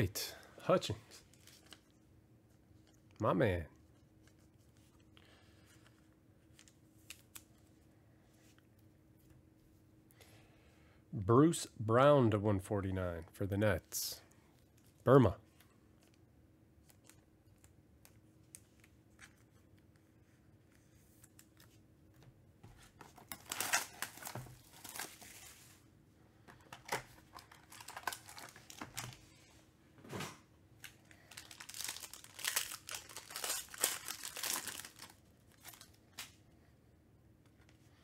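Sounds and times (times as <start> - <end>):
foil pack crinkling: 23.0 - 25.8, 26.8 - 29.2, 30.8 - 36.3
foil pack being torn open: 23.2 - 25.4, 27.4 - 29.1, 31.2 - 36.0.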